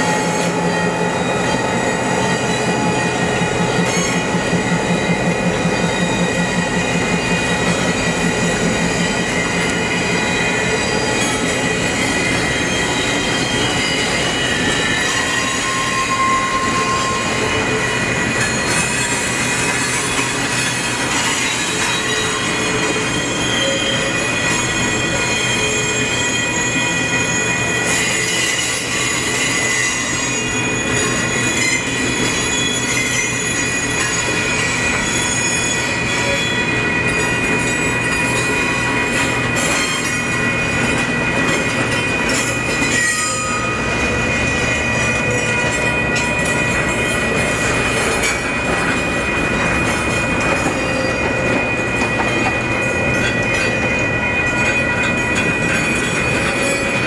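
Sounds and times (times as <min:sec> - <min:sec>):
train cars rolling: 0:00.0 - 0:57.0
train wheels squealing on rail: 0:00.0 - 0:57.0.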